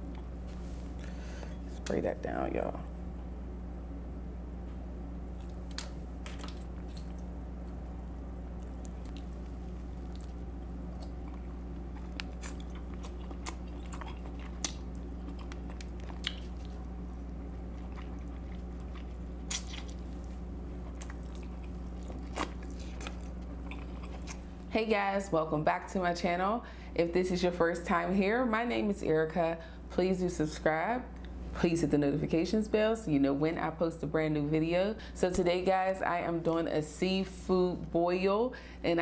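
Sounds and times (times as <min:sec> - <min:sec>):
steady low hum: 0:00.0 - 0:39.0
crab meat chewing: 0:05.3 - 0:07.8, 0:08.4 - 0:24.7
wet squishes: 0:05.4 - 0:07.3, 0:17.7 - 0:24.4.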